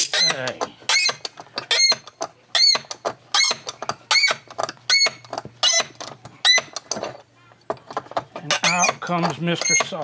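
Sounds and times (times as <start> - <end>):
clamp screw squeaking: 0.0 - 7.3, 7.9 - 10.0.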